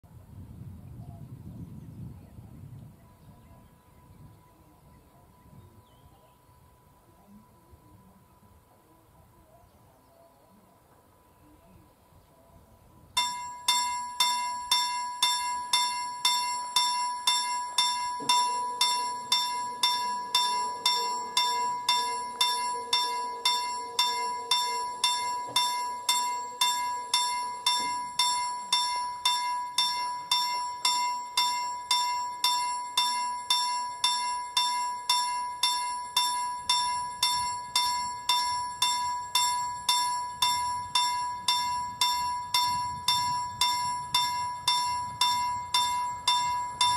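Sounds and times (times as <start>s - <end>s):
level crossing bell ringing: 13.2s - 46.9s.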